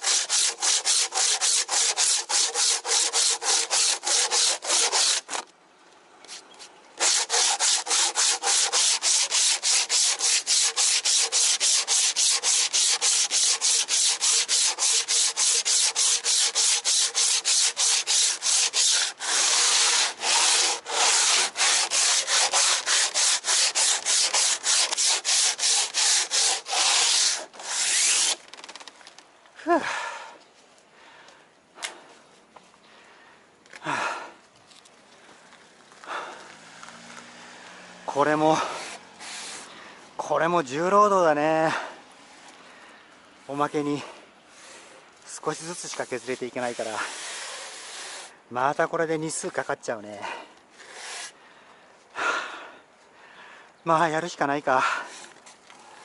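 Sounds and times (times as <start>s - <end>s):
sandpaper scrubbing hard surface: 0.0s - 5.4s, 7.0s - 28.4s, 38.6s - 39.7s, 45.5s - 48.3s.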